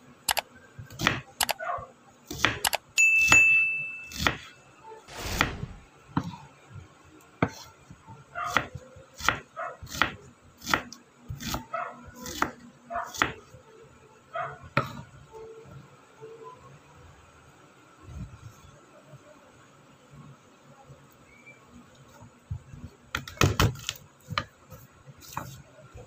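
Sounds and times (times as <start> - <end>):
short high tone: 3.0 - 4.3.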